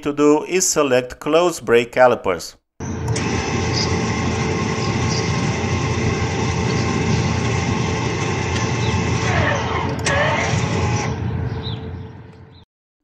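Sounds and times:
electric brake motor whine: 2.8 - 12.6.

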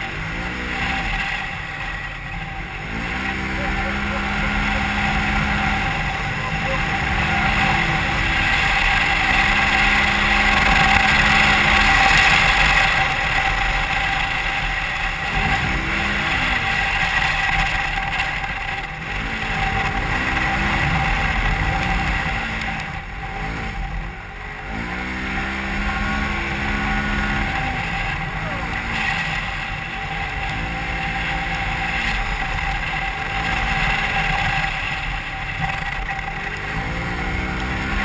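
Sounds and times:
engine running hard: 0.0 - 38.0
heavy wind: 0.0 - 38.0
vehicle driving noise: 0.0 - 38.0.

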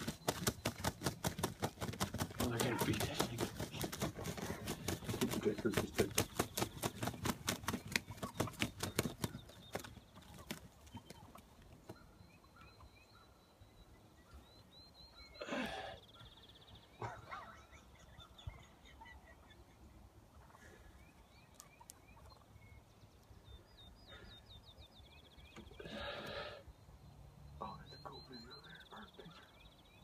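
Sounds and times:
faint chirping calls: 0.0 - 30.0
turkey gobbling: 10.2 - 12.0, 17.0 - 20.8, 21.4 - 22.5.

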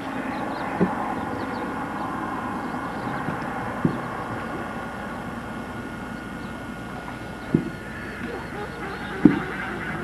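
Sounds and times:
outdoor rumble and hiss: 0.0 - 10.0
short dull knocks: 3.1 - 4.1, 7.4 - 8.4.

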